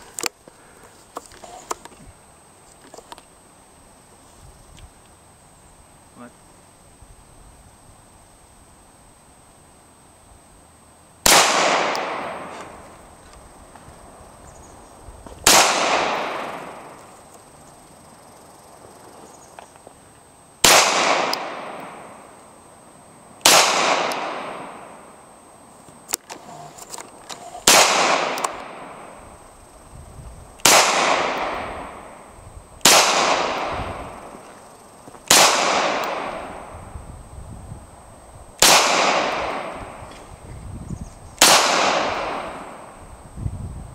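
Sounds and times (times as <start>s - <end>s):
pistol shots echoing: 11.2s - 12.8s, 15.4s - 17.0s, 20.6s - 22.2s, 23.4s - 25.0s, 27.6s - 29.2s, 30.6s - 34.4s, 35.3s - 36.7s, 38.6s - 40.0s, 41.4s - 42.9s.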